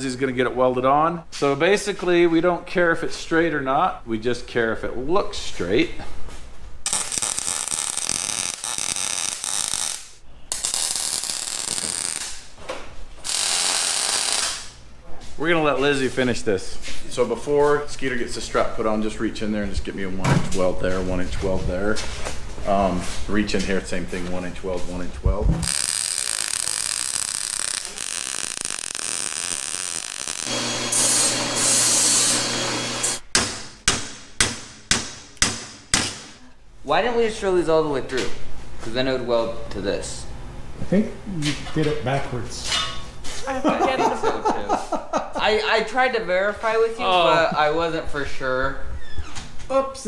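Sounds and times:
welder arc crackling and hissing: 0:06.9 - 0:12.5, 0:13.2 - 0:14.8, 0:25.6 - 0:33.2
drill bit cutting steel: 0:25.6 - 0:33.2
drill press motor humming: 0:30.0 - 0:33.2.

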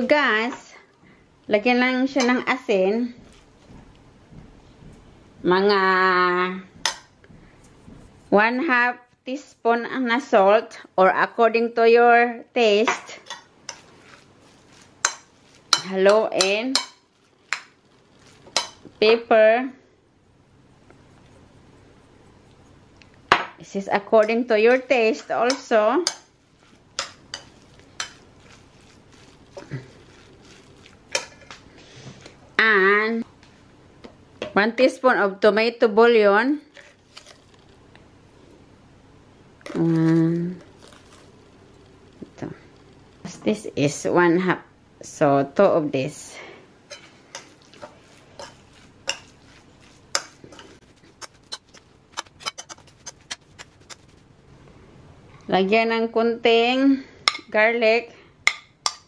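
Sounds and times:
soft wet mixing: 0:02.1 - 0:05.4, 0:06.8 - 0:08.5, 0:13.1 - 0:19.1, 0:20.4 - 0:32.5, 0:36.6 - 0:38.7, 0:39.6 - 0:43.4, 0:46.1 - 0:54.7
fork clinking against bowl: 0:25.2 - 0:26.3, 0:27.0 - 0:28.2, 0:46.9 - 0:54.0.

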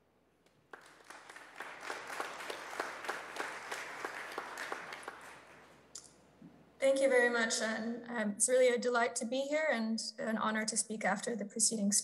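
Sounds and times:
audience applauding: 0:00.6 - 0:05.9.

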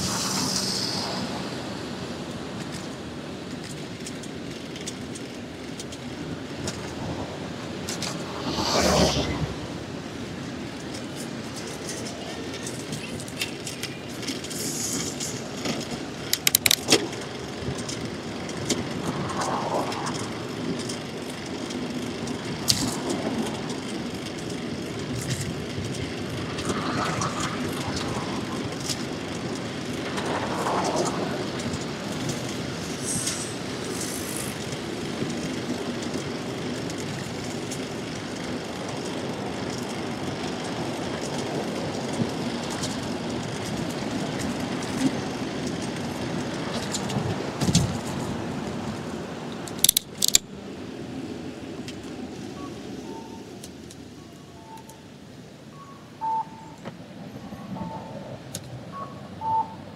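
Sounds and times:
city traffic: 0:00.0 - 0:59.9
rushing wind: 0:00.0 - 0:59.9
rattle of sharp clicks: 0:10.8 - 0:37.9, 0:49.7 - 0:50.5.

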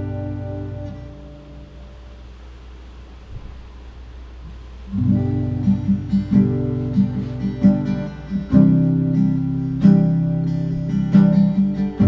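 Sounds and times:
acoustic guitar strumming chords: 0:00.0 - 0:02.4, 0:04.8 - 0:12.0.

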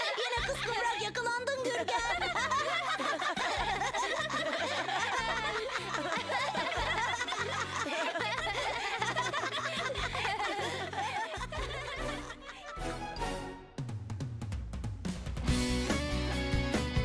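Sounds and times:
cartoon voices laughing: 0:01.6 - 0:12.8
background music with bass line: 0:03.4 - 0:10.5, 0:11.4 - 0:17.0.

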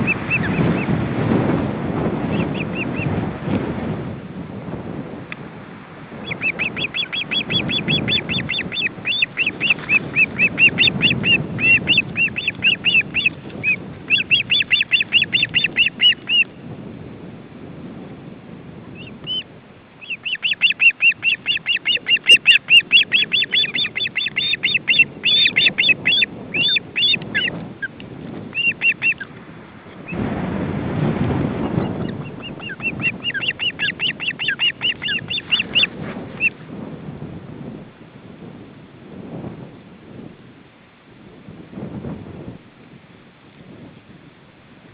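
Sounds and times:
wind rumble on microphone: 0:00.0 - 0:44.9
birds whistled chirps: 0:06.3 - 0:16.5, 0:19.0 - 0:27.6, 0:28.6 - 0:29.3, 0:31.6 - 0:36.5.

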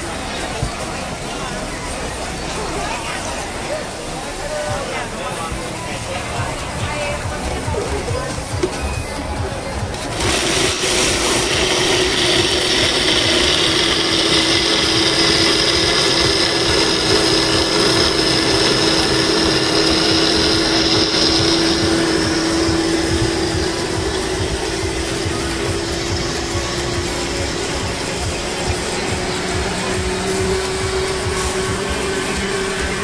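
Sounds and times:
high whine: 0:05.5 - 0:33.0
blender motor running: 0:09.8 - 0:33.0.

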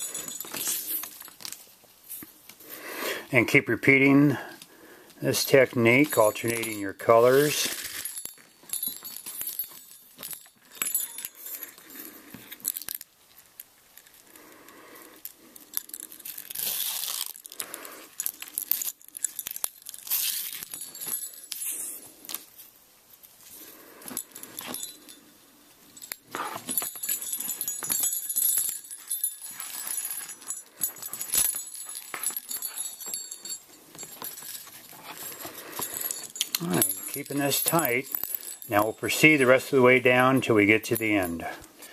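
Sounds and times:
jingle bells jingling: 0:00.0 - 0:01.3, 0:05.2 - 0:12.9, 0:23.5 - 0:41.9
leather lace scraping: 0:15.2 - 0:22.6, 0:26.3 - 0:37.4.

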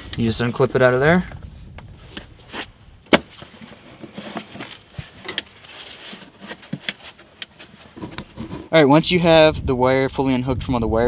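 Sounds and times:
cable handling rustle: 0:01.8 - 0:08.7.

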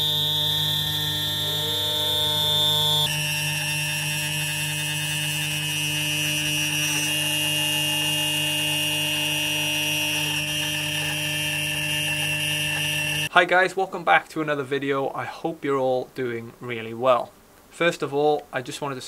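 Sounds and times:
cnc router spindle whining: 0:00.0 - 0:13.3
low hum: 0:00.0 - 0:13.3.

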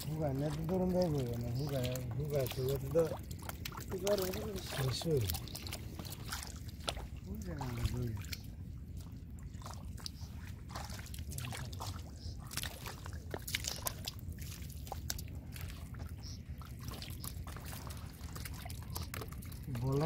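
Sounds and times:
hands splashing in water: 0:09.6 - 0:16.0.

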